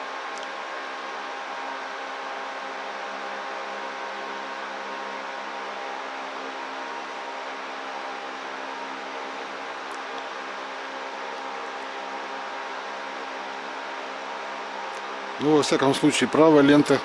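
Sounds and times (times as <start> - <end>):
distant fan whirring: 0.0 - 17.0.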